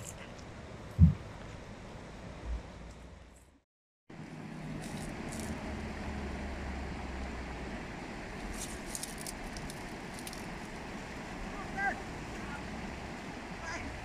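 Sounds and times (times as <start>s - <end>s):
light crackles: 8.4s - 10.9s.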